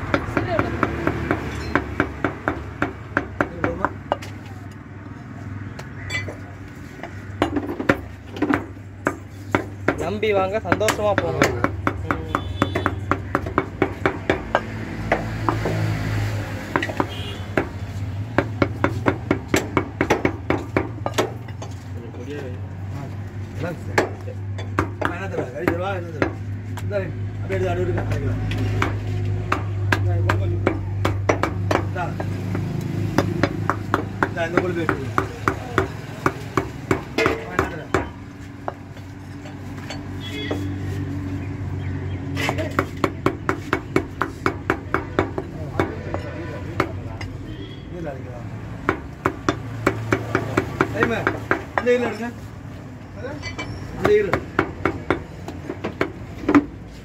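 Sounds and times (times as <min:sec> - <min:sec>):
cleaver chopping on wooden block: 0:07.0 - 0:15.9, 0:16.6 - 0:21.5, 0:23.9 - 0:26.9, 0:27.9 - 0:38.9, 0:42.3 - 0:47.6, 0:48.8 - 0:52.2, 0:54.0 - 0:56.8.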